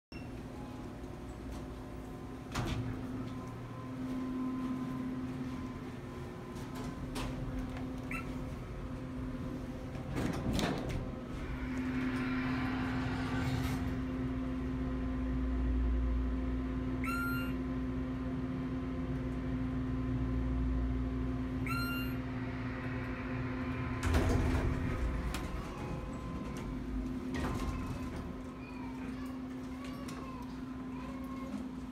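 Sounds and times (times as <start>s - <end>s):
elevator hum and rumble: 0.1s - 31.9s
elevator clunk: 22.9s - 28.6s.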